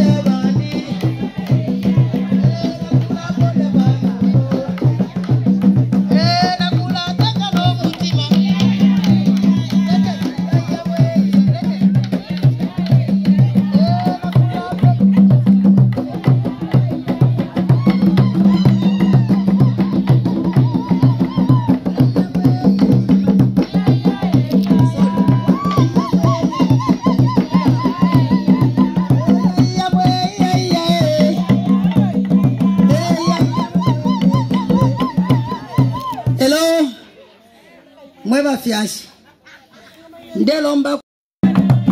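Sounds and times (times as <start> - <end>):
hand drums fast rhythm: 0.0 - 36.7, 41.4 - 41.9
high trilling voices: 17.6 - 36.6.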